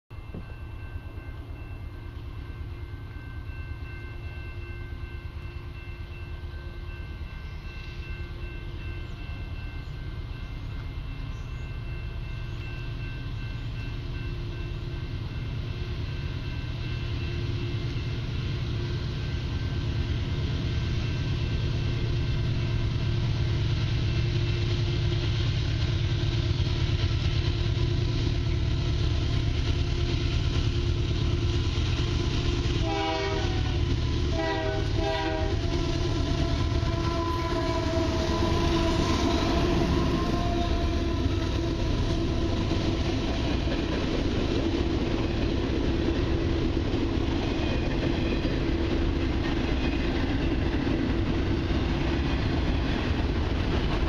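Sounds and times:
diesel locomotives rumbling: 0.1 - 54.0
train horn blasts: 32.0 - 43.0.

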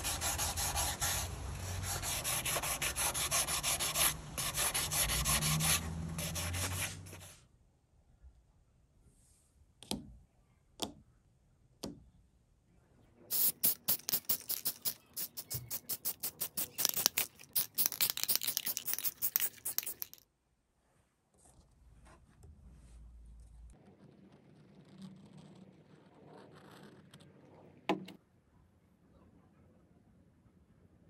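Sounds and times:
spray paint can hissing in bursts: 13.3 - 20.2.

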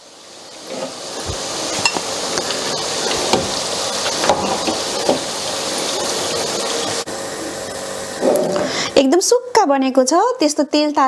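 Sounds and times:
fritters sizzling in oil: 0.0 - 7.1.

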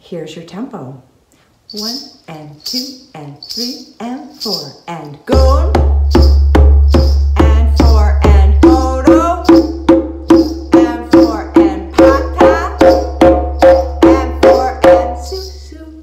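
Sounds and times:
djembe played by hand: 5.4 - 15.5.

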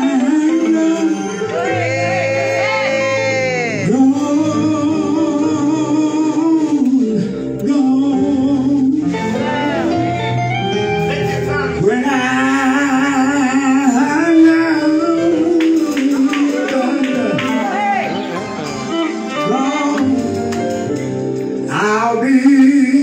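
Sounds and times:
male vocal quartet singing: 0.0 - 20.5, 21.6 - 23.0
guitar: 0.0 - 23.0
drums: 10.9 - 23.0.

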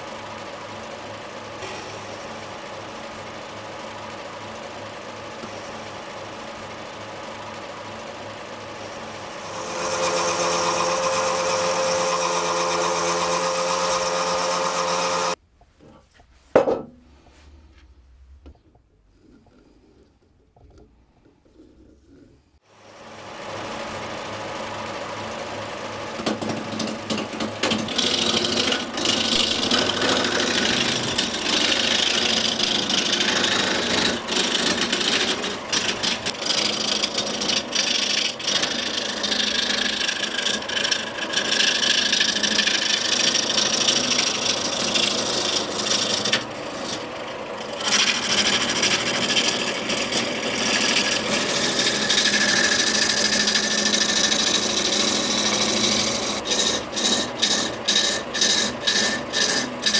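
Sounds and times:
lathe tool rasping wood: 9.2 - 15.4, 26.2 - 59.9.

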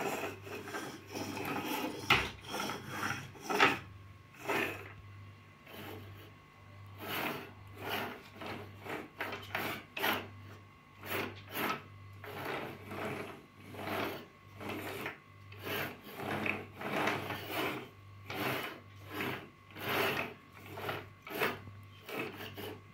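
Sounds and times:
toy wheels scraping on tabletop: 0.0 - 5.0, 5.6 - 22.9.

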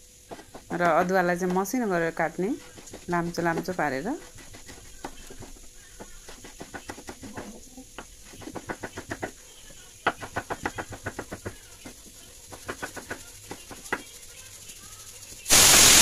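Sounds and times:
knife chopping on wooden board: 0.3 - 1.7, 2.6 - 9.4, 10.0 - 14.0.

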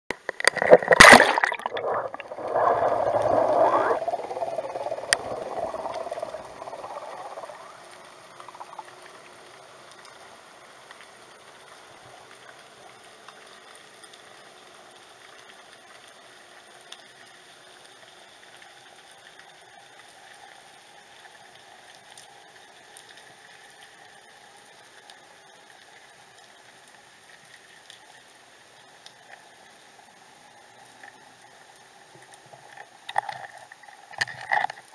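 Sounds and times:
air bubbles gurgling underwater: 0.3 - 9.0.

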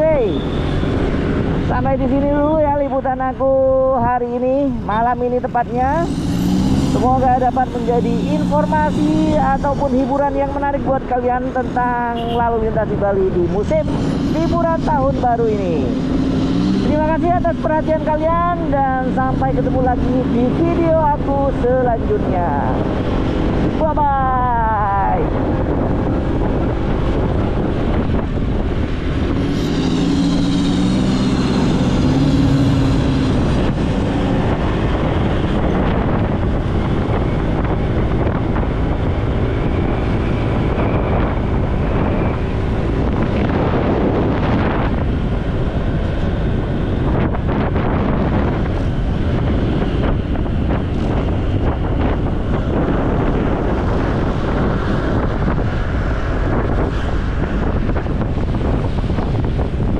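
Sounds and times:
road and traffic noise: 0.0 - 59.9
wind rushing over microphone: 0.0 - 59.9
pitched vehicle tone: 5.2 - 21.4.

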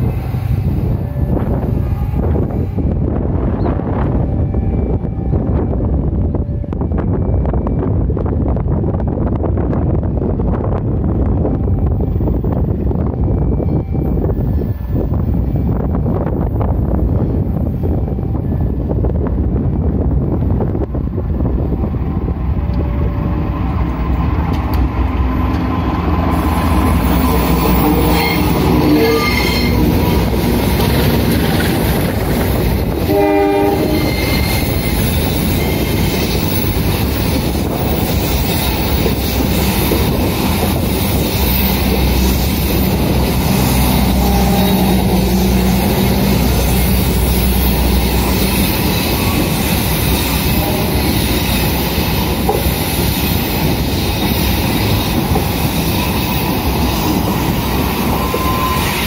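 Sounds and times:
train wheels squealing on track: 0.0 - 8.2, 11.4 - 20.4, 25.4 - 59.0
train passing by: 0.0 - 59.0
train horn blast: 24.6 - 31.4, 32.9 - 35.9, 41.4 - 52.5, 58.0 - 59.0.

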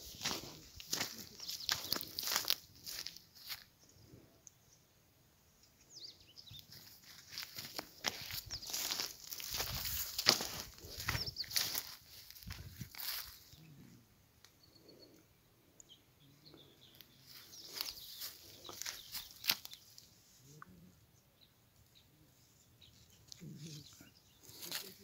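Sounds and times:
footsteps rustling through dry scrub: 0.0 - 3.8, 6.4 - 13.7, 16.8 - 20.3, 23.0 - 25.0
faint bird chirps: 10.5 - 25.0.

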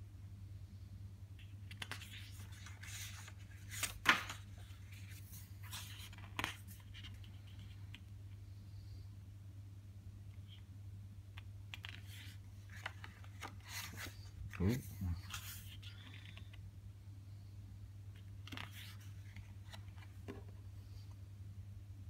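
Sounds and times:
paper page turning: 1.4 - 8.0, 11.4 - 16.6, 18.2 - 20.4.

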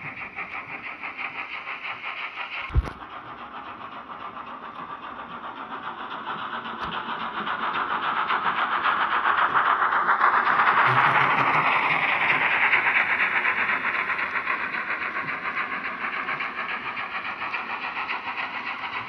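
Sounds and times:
model train running: 0.0 - 19.0
brief thump: 2.7 - 3.0.

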